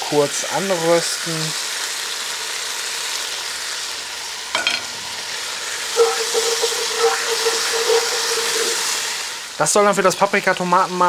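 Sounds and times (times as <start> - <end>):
vegetables sizzling in a pot: 0.0 - 11.0
steady hum: 5.9 - 9.3
spoon scraping pot: 6.0 - 9.0.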